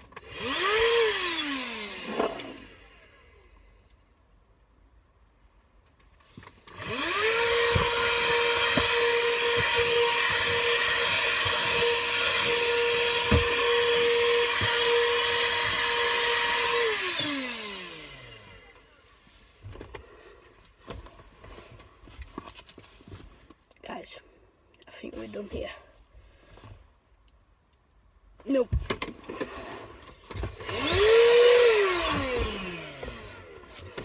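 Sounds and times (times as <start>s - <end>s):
vacuum cleaner motor whining: 0.0s - 3.5s, 6.6s - 19.0s, 29.2s - 34.0s.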